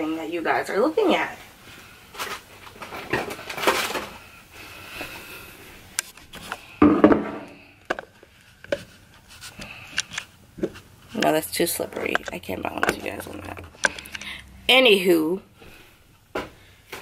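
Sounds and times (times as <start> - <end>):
objects rubbing and clattering: 0.6 - 5.3.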